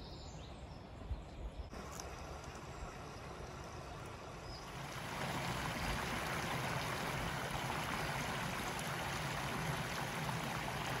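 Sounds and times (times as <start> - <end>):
water pouring over a weir: 4.6 - 11.0.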